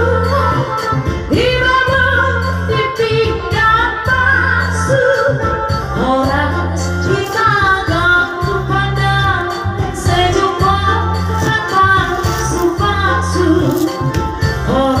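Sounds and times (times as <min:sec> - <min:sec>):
woman singing: 0:00.0 - 0:15.0
pulsing bass beat: 0:03.5 - 0:15.0.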